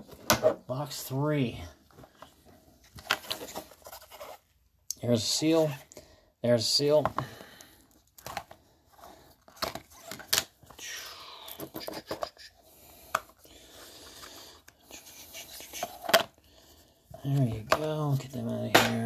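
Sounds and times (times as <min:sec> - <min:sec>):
soft steady rustle: 0:01.3 - 0:04.8
clicks and knocks of box handling: 0:01.9 - 0:04.1, 0:07.9 - 0:08.6, 0:09.4 - 0:10.7.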